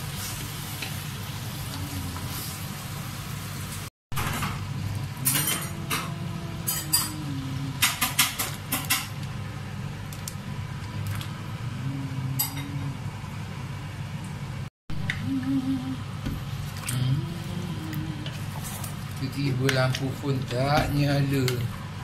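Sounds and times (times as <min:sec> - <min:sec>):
steady low hum: 0:04.4 - 0:22.0.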